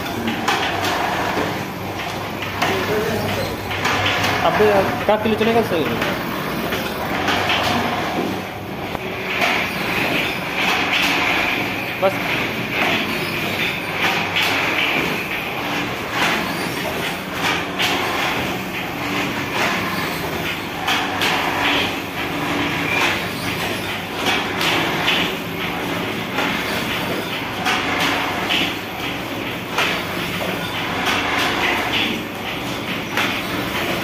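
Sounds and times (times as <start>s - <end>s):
steady mechanical din: 0.0s - 34.0s.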